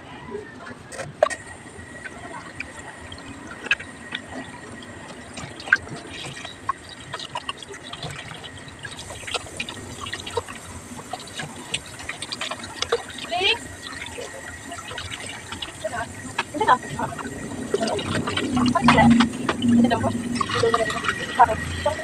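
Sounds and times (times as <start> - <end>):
small splashes: 1.0 - 22.0.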